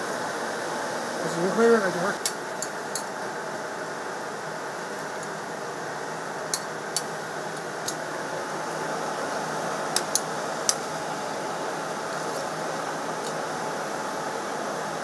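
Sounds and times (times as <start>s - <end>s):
steady fan whir: 0.0s - 15.0s.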